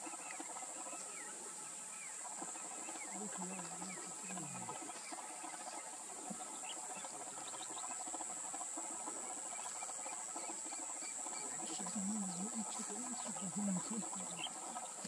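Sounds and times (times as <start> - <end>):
faint bird chirps: 0.0 - 15.0
insect chorus: 0.0 - 15.0.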